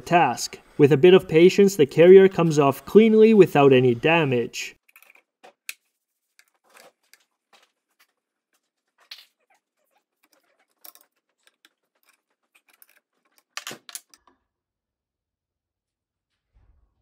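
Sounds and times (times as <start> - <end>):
metal tools clicking and scraping: 10.2 - 14.2.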